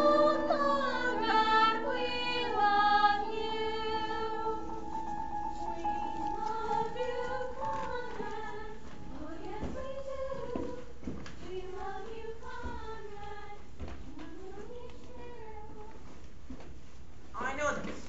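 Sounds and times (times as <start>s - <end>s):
girls singing: 0.0s - 16.0s
footsteps on stage floor: 4.6s - 18.0s.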